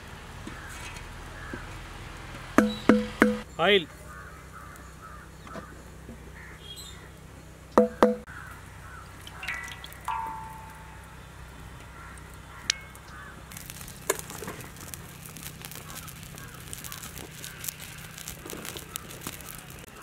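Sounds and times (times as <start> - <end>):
birds calling: 0.4 - 1.8, 2.6 - 20.0
light crackling: 8.5 - 20.0.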